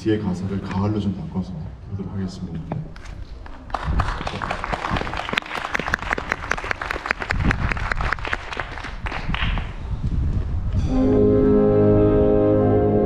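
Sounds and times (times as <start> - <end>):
audience applauding: 3.5 - 9.8.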